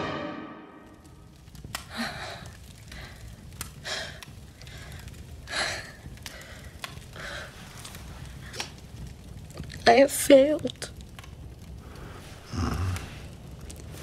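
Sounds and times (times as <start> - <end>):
woman breathing heavily: 1.8 - 7.8.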